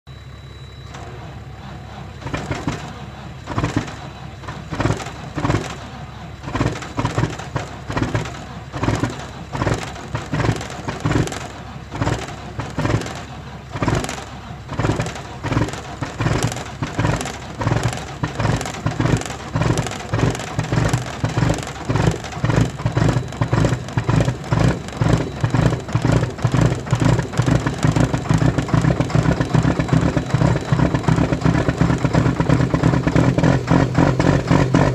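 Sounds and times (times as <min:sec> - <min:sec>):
diesel truck engine cold starting: 0:00.2 - 0:34.9.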